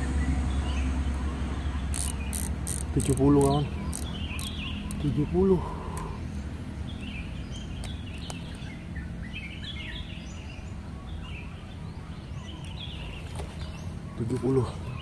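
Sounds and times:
steady low rumble: 0:00.0 - 0:03.0
small birds chirping: 0:00.0 - 0:15.0.

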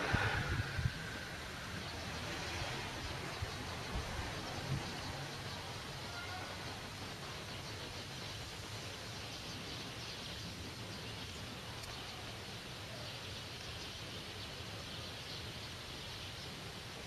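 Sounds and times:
low rumble: 0:00.0 - 0:03.2
high hiss: 0:00.0 - 0:17.0.

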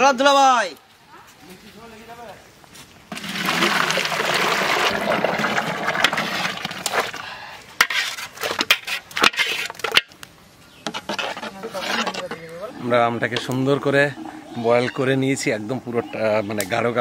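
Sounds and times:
thick pulp pouring and splashing: 0:03.1 - 0:07.3.

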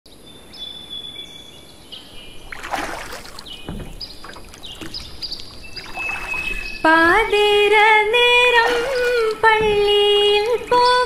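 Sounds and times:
paddle splashing through water: 0:02.2 - 0:11.0
faint high whistling tones: 0:05.6 - 0:11.0.

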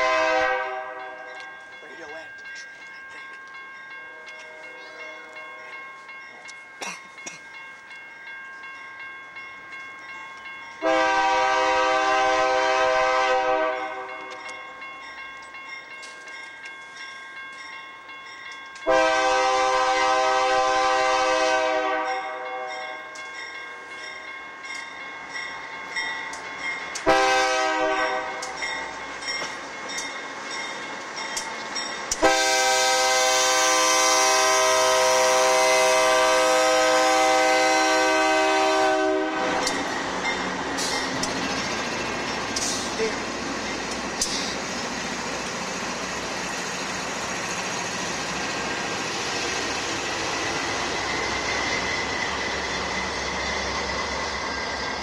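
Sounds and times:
locomotive air horn blasts: 0:00.0 - 0:01.3, 0:10.8 - 0:14.2, 0:18.9 - 0:22.8, 0:27.0 - 0:28.6, 0:32.2 - 0:39.8
train rumbling: 0:00.0 - 0:55.0.

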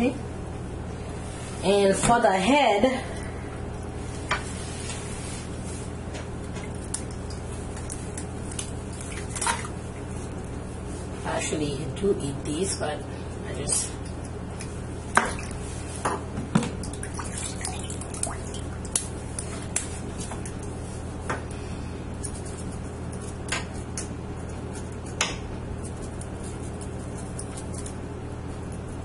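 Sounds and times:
steady low hum: 0:00.0 - 0:29.0
water splashing and dripping: 0:16.7 - 0:19.1.

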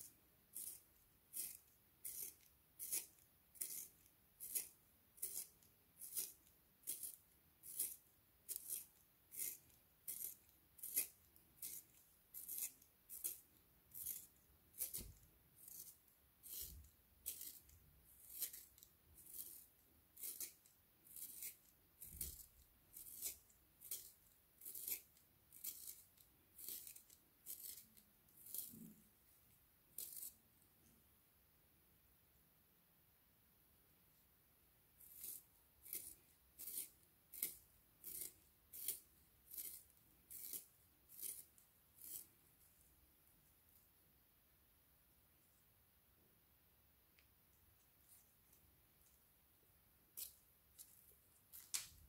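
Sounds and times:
pencil sharpener rasping wood: 0:00.6 - 0:28.8, 0:35.0 - 0:42.3.

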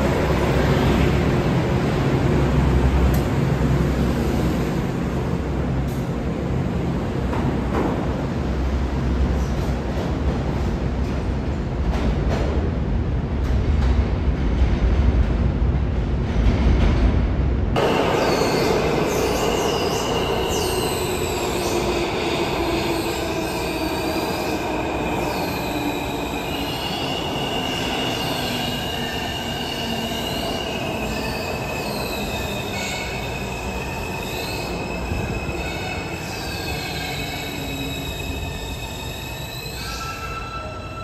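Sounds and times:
train wheels squealing: 0:17.8 - 0:41.0.

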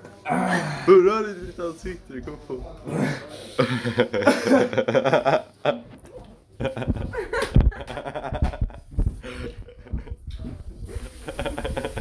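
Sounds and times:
people laughing: 0:03.6 - 0:05.8, 0:06.6 - 0:10.3, 0:10.9 - 0:12.0.

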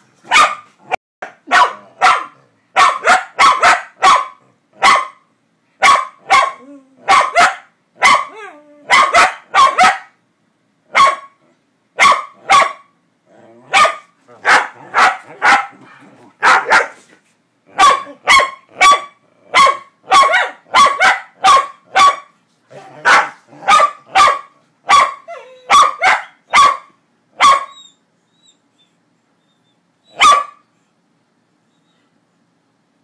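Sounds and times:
dog barking: 0:00.3 - 0:08.3, 0:08.9 - 0:10.2, 0:10.9 - 0:11.4, 0:12.0 - 0:12.9, 0:13.7 - 0:17.0, 0:17.7 - 0:27.8, 0:30.1 - 0:30.6.

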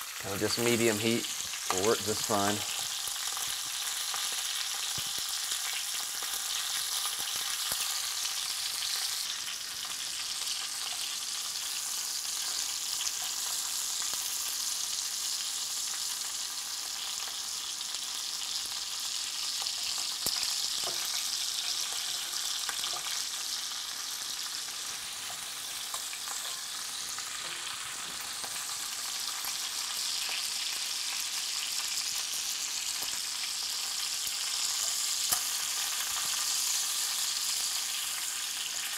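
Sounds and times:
meat sizzling in hot fat: 0:00.0 - 0:38.9.

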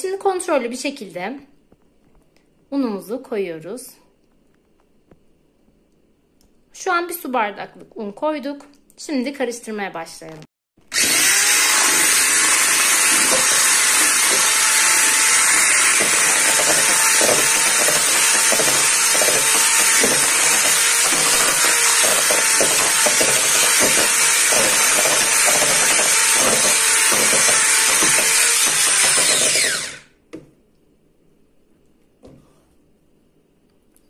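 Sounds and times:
electric mixer running: 0:10.9 - 0:30.1
mixer motor winding down: 0:10.9 - 0:30.1.

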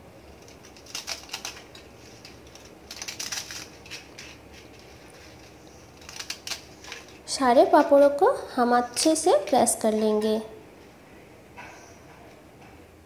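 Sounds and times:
papad snapping and crackling: 0:00.4 - 0:07.9.

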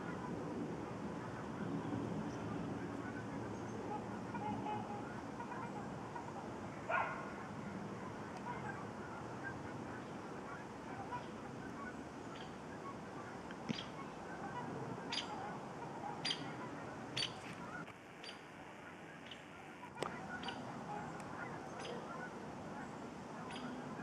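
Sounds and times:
geese and swans honking: 0:00.0 - 0:24.0.

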